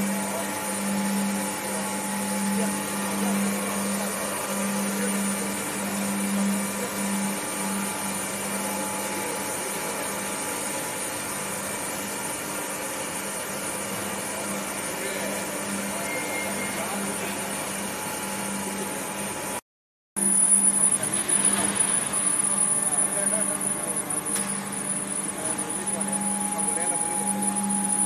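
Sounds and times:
machinery hiss and hum: 0.0 - 10.7.

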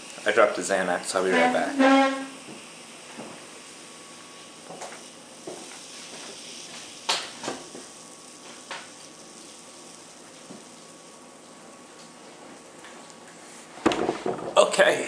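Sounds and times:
soda fizzing: 0.0 - 12.3.

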